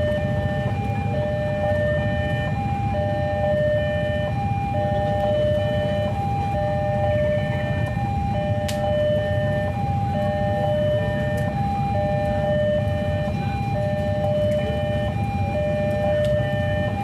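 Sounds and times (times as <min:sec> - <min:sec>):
road traffic rumble: 0:00.0 - 0:17.0
two-tone crossing alarm: 0:00.0 - 0:17.0.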